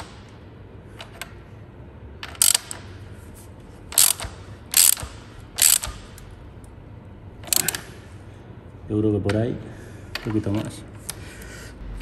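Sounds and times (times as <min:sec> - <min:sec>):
ratchet wrench clicking: 0:02.2 - 0:02.9, 0:03.9 - 0:06.2, 0:07.4 - 0:07.8.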